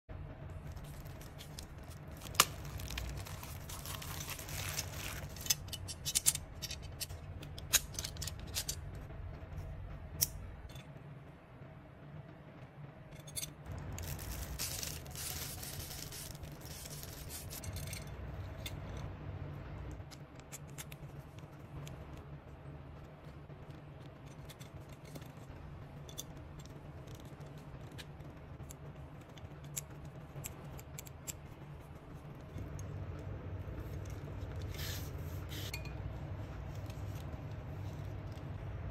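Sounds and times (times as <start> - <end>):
plastic wrapping crinkling: 0.6 - 5.7, 13.7 - 17.6.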